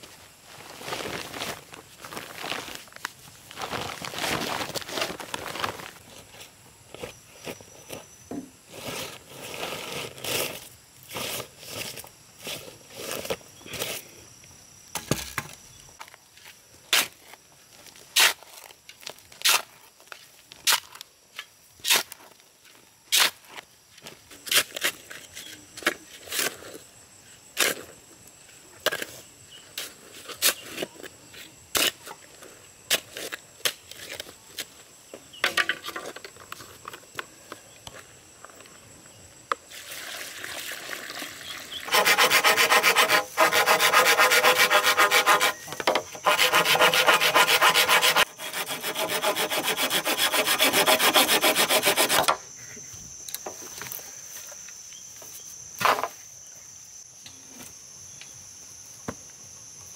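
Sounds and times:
rustling and shuffling: 0:00.0 - 0:14.1.

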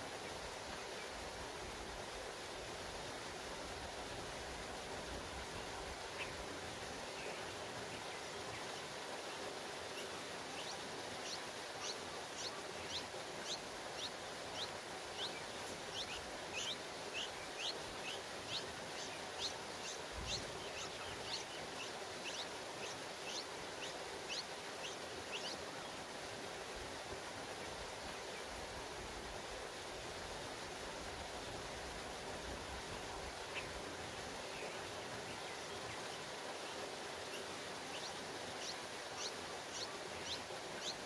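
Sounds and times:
outdoor hiss: 0:00.0 - 0:41.0
nestlings chirping: 0:10.6 - 0:25.6.

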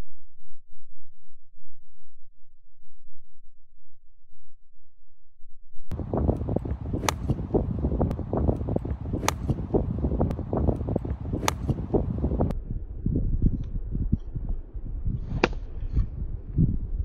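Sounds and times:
wind buffeting microphone: 0:05.9 - 0:17.0
golf club striking ball: 0:06.1 - 0:12.5.

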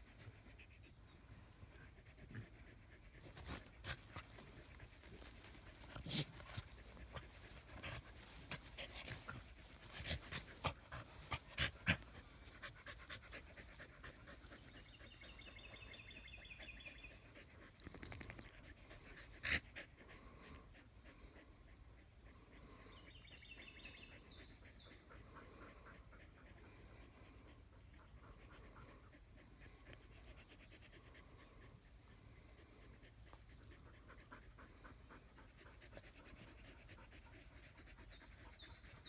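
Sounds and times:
dog panting: 0:00.0 - 0:39.0
rustling and scuffing in grass: 0:03.5 - 0:12.7.

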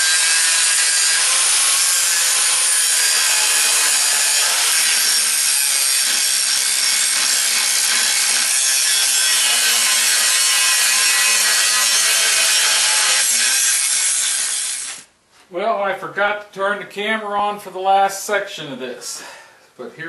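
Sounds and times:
angle grinder grinding steel: 0:00.0 - 0:15.1.

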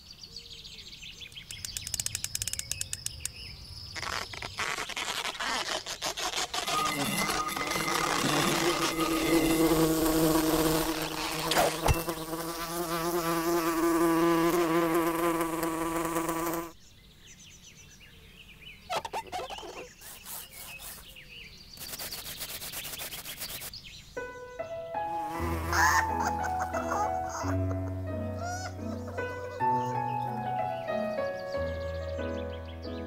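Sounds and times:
fly buzzing under a glass: 0:04.0 - 0:16.8, 0:18.9 - 0:21.1, 0:25.2 - 0:27.6.

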